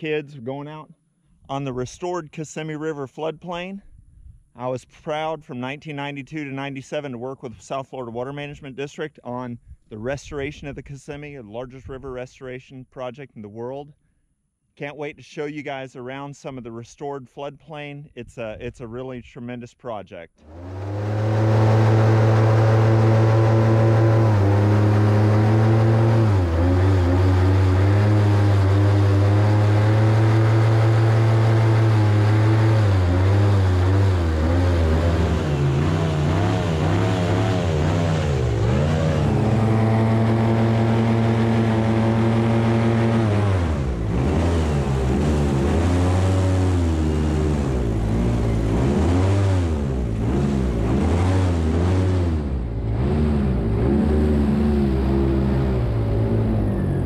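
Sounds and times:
airboat engine and propeller drone: 20.4 - 57.0.

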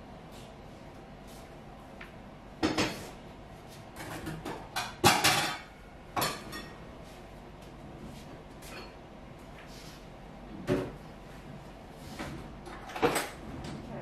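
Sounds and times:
dishes and pots clattering: 4.0 - 6.8.

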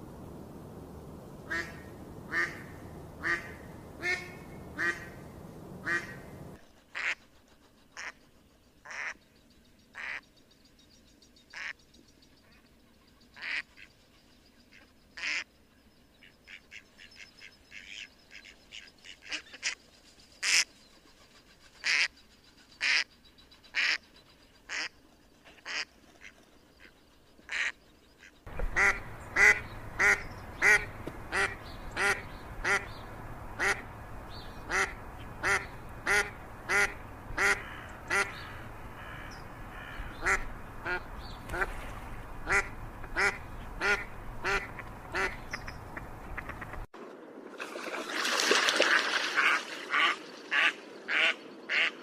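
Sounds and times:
steady hiss: 0.0 - 8.9
ducks quacking: 1.5 - 5.2, 5.8 - 6.3, 6.9 - 7.3, 27.5 - 33.0, 33.6 - 33.9, 34.6 - 46.9, 49.0 - 52.0.

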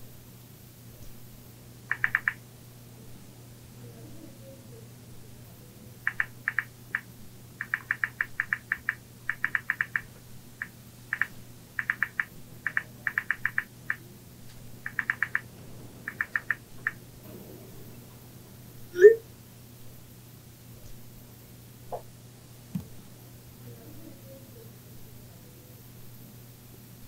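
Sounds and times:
smartphone keyboard clicks: 1.9 - 2.4, 6.1 - 13.7, 14.8 - 15.5, 16.1 - 17.0.

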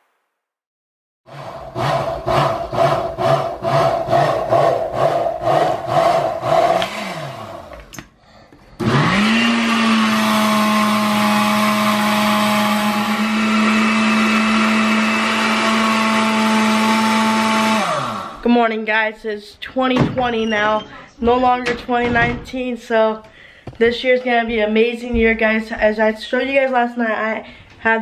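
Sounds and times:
blender running: 1.3 - 7.9, 8.7 - 18.5.

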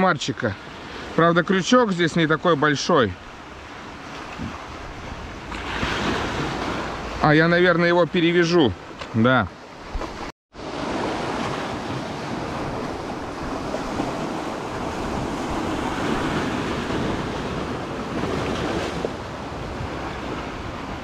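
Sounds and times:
sea surf washing onto beach: 0.0 - 21.0
wind buffeting microphone: 10.9 - 21.0.

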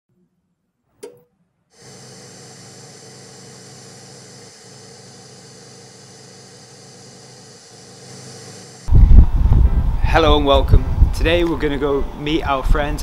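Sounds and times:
low hum: 1.8 - 11.2.

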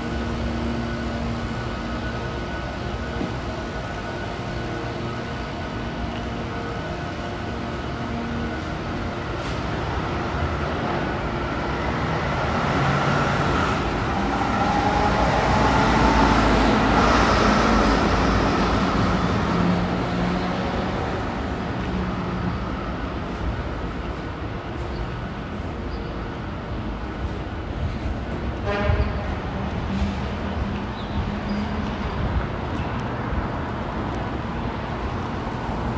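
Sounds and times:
road traffic passing: 0.0 - 35.9.

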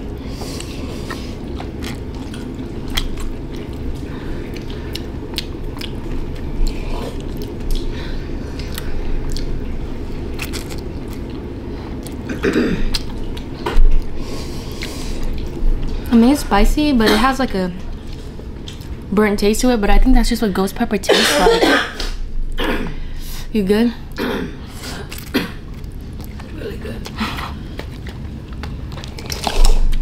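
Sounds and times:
chewing and slurping noodles: 0.3 - 7.9, 25.1 - 30.0.

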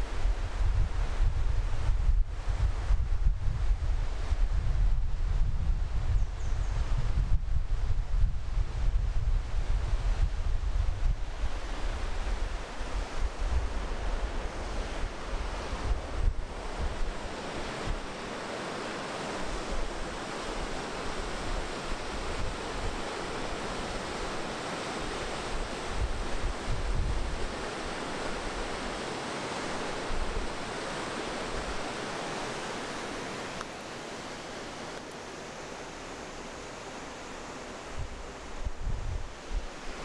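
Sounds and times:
wind buffeting microphone: 0.0 - 18.1, 25.6 - 27.7, 37.9 - 40.0
river rushing through rapids: 11.2 - 40.0.

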